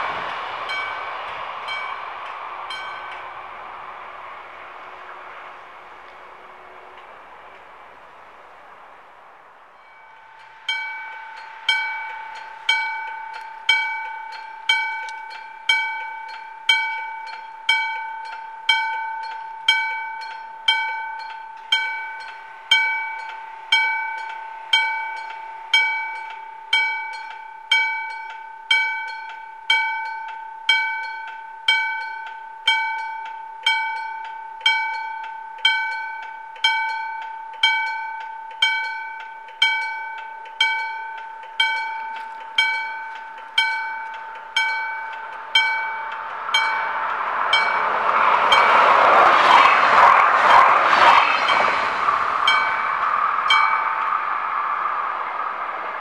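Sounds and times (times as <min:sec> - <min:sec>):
level crossing bell ringing: 0:09.8 - 0:48.9.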